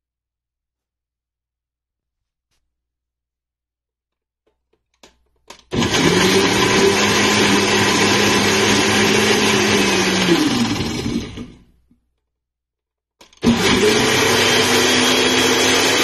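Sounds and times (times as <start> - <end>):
blender motor running: 5.7 - 11.7, 13.4 - 16.0.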